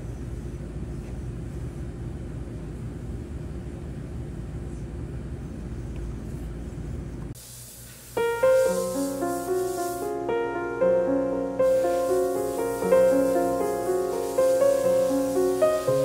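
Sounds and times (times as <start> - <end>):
low machine rumble: 0.0 - 7.4
faint constant hum: 0.0 - 16.0.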